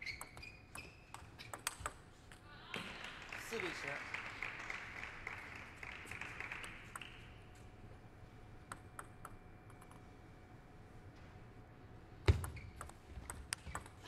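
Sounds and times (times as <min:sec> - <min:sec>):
table tennis ball bouncing: 0:00.0 - 0:02.0
people clapping in rhythm: 0:02.7 - 0:07.4.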